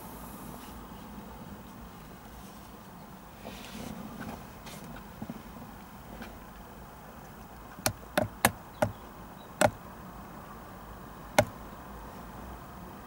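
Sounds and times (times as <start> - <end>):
sharp knocks: 7.8 - 9.0.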